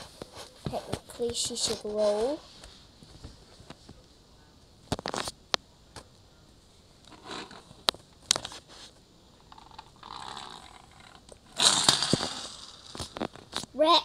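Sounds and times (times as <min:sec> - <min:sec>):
plastic toy clicking and scraping on wood: 0:07.1 - 0:07.7, 0:09.4 - 0:13.4.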